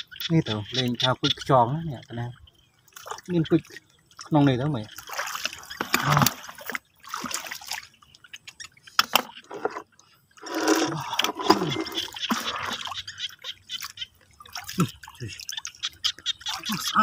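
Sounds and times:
shallow water splashing: 0.0 - 17.0
water pouring: 3.1 - 7.9, 9.4 - 13.1.

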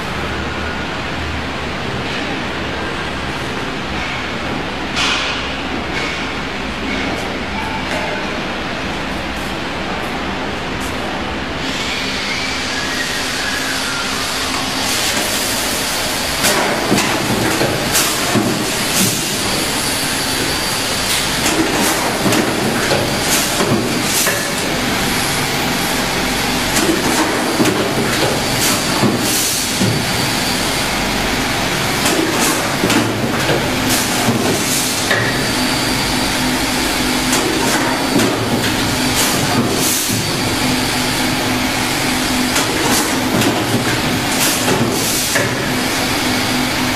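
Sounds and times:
machine humming and hissing: 0.0 - 46.9
machine knocks and clatters: 16.4 - 19.8, 21.1 - 24.8, 26.6 - 30.2, 31.9 - 35.5, 37.2 - 40.4, 42.1 - 45.9.

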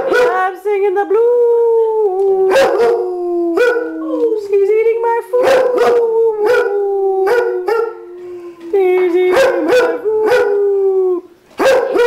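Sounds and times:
dog howling: 1.7 - 4.3.

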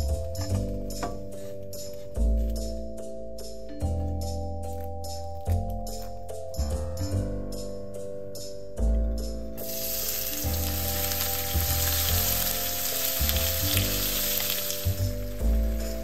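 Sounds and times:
light background music: 0.0 - 16.0
shrimp sizzling in frying pan: 9.6 - 16.0.

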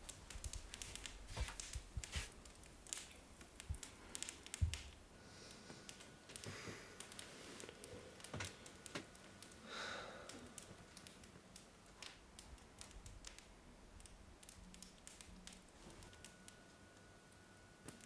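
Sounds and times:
soft rustle: 0.0 - 5.0, 5.6 - 8.9
faint clicks and ticks: 0.0 - 17.1.

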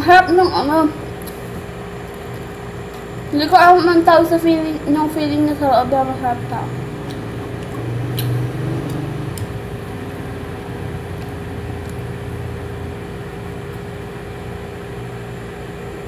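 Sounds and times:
steady mechanical hum: 0.0 - 16.0
faint chewing clicks: 7.0 - 10.1, 10.8 - 12.4.

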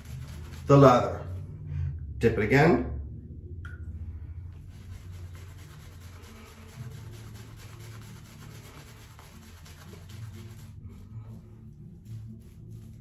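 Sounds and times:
shaving brush scrubbing stubble: 0.0 - 1.2, 4.6 - 13.0.

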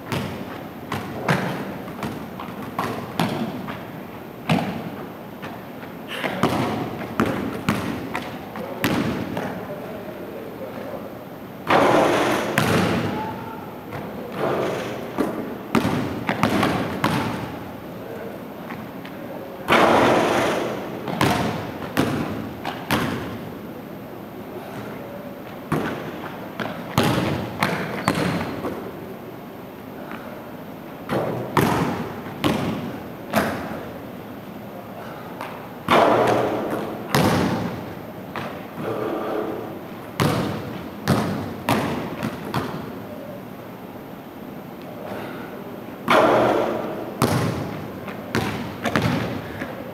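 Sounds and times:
basketball striking hoop: 0.1 - 3.6, 6.3 - 9.5, 11.6 - 13.2, 13.9 - 17.5, 19.7 - 23.4, 26.6 - 28.7, 31.1 - 33.7, 35.9 - 37.8, 40.2 - 42.8, 46.1 - 49.4
basketball bouncing on wooden floor: 0.1 - 4.9, 6.3 - 9.5, 11.7 - 13.2, 15.2 - 17.5, 21.1 - 23.3, 25.7 - 28.8, 31.1 - 33.6, 35.9 - 37.8, 40.2 - 42.8, 46.1 - 49.6.

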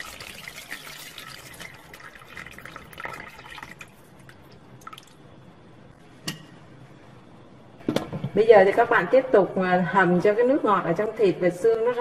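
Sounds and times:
water pouring into pot: 0.0 - 5.2.

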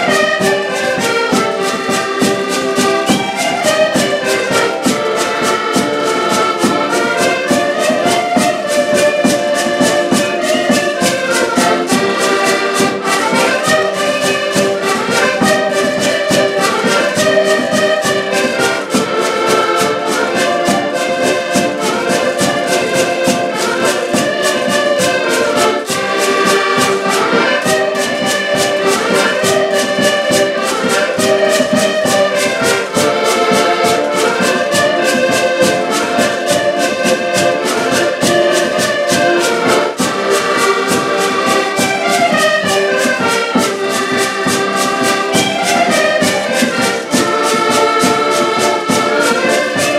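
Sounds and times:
button accordions playing folk tune: 0.0 - 49.9
fast percussive beat: 0.0 - 49.9.

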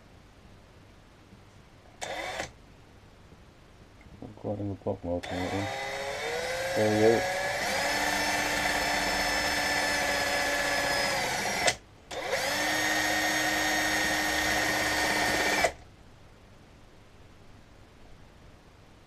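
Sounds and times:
power drill whining: 2.0 - 2.5, 5.2 - 15.8.

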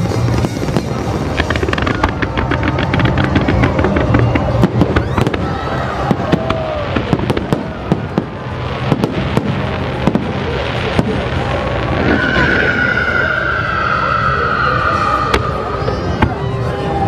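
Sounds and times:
fireworks bangs and crackles: 0.0 - 17.0
high whistle-like tone: 12.0 - 16.8.

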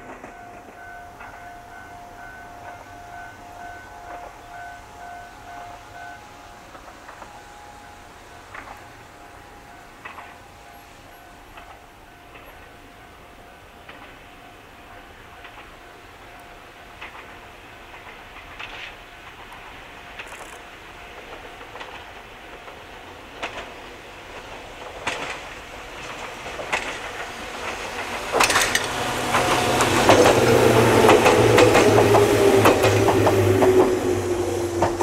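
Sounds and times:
electric train passing: 0.0 - 35.0
wheels clicking over rail joints: 8.4 - 35.0.

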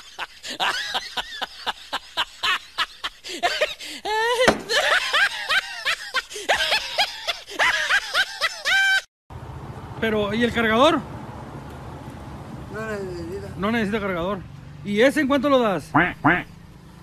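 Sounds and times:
person laughing hard: 0.0 - 9.0.

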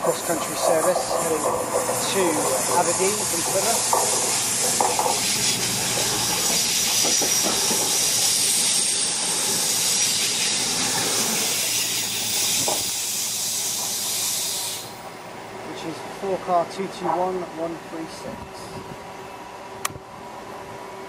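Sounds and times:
train passing at speed: 0.0 - 12.8
wheel-on-rail noise: 0.0 - 15.2.

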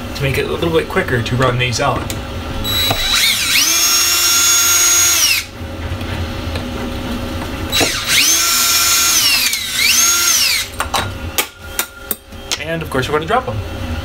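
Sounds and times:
cordless drill motor whine: 2.6 - 5.5, 7.7 - 10.8.

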